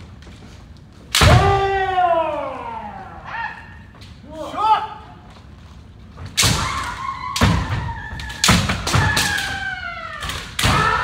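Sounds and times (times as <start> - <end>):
bamboo sword strikes: 1.1 - 1.7.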